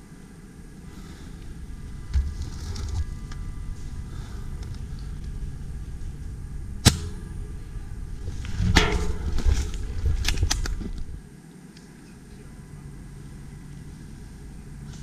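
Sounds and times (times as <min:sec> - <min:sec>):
airsoft rifle shot: 0:06.8 - 0:07.2.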